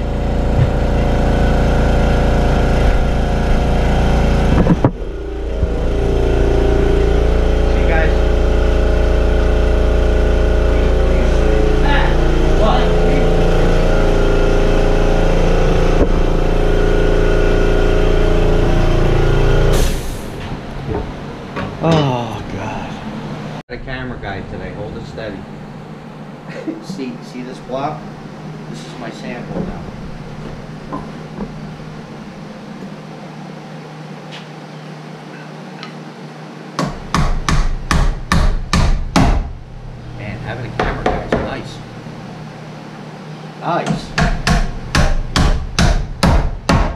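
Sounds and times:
machine motor humming: 0.0 - 38.4, 39.1 - 45.8
hammer striking wood: 36.8 - 39.5, 40.8 - 41.5, 43.9 - 46.9.

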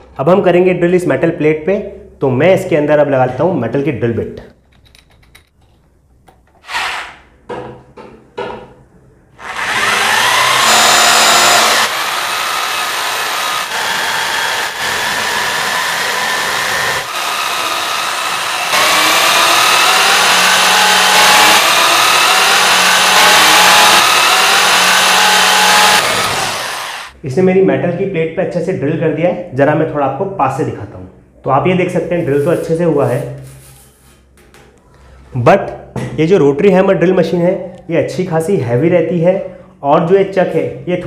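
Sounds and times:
hammer drill cutting steel: 6.6 - 7.2, 9.4 - 27.2
drill clicks: 9.4 - 27.1.

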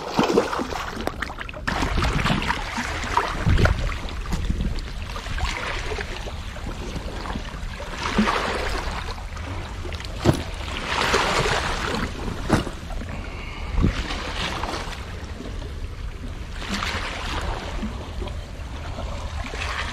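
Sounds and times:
small waves splashing over rocks: 0.0 - 15.3
steady low rumble: 0.0 - 19.9.

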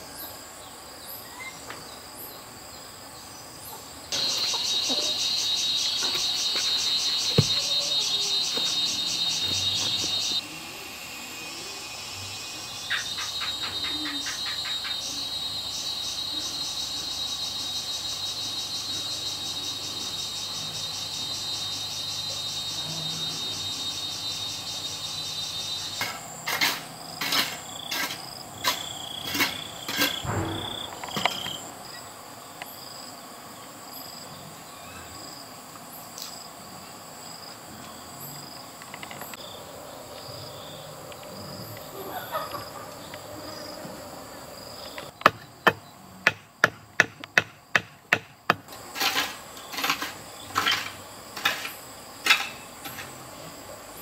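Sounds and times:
insects chirping: 0.0 - 54.0
sharp hard knocks: 7.3 - 7.7, 30.2 - 31.4, 45.2 - 48.7.

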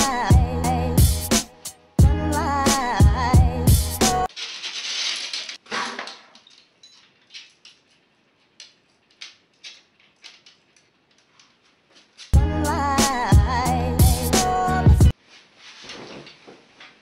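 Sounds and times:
light clicks and clinks: 6.3 - 12.4
rustling of fishing gear: 6.4 - 12.4, 15.1 - 17.0.

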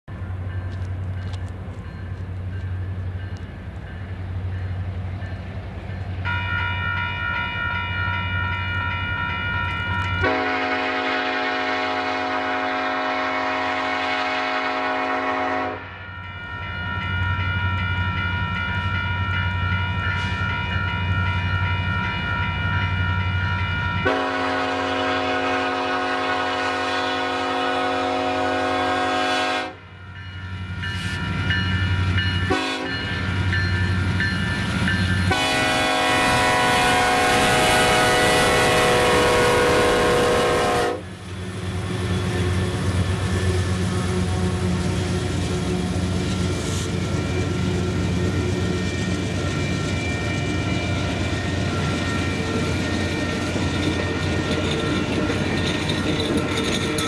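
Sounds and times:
crossing warning bell ringing: 0.1 - 57.0
locomotive air horn blasts: 10.2 - 15.9, 24.0 - 29.8, 32.5 - 33.0, 35.3 - 41.1.

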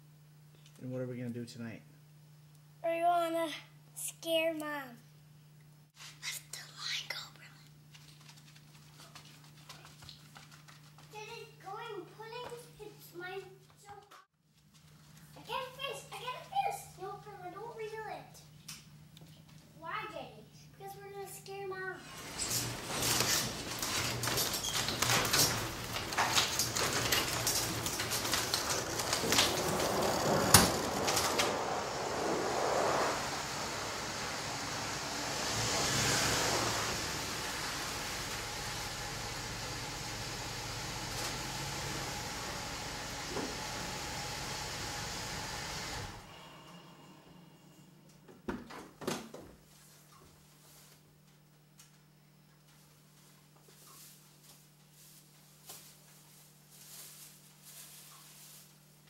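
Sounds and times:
garage door opener rumbling: 21.9 - 47.6
car engine running: 27.0 - 46.2.

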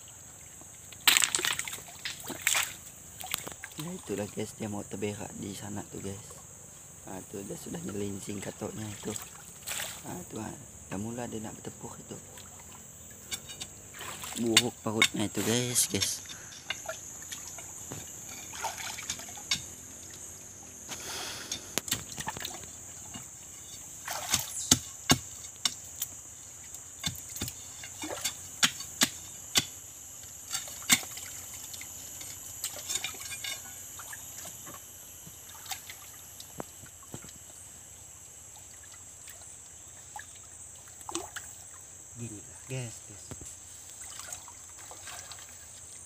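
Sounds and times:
trickling water: 0.0 - 4.6, 7.8 - 10.4, 11.4 - 24.8, 26.5 - 28.4, 30.5 - 43.0, 43.9 - 46.0
steady high hiss: 0.0 - 46.0
metal bar scraping on stones: 13.2 - 13.8, 14.4 - 20.3, 27.0 - 33.8.

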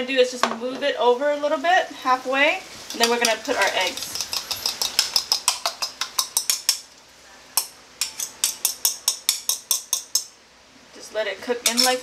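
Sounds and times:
utensil scraping ceramic bowl: 2.9 - 6.7.

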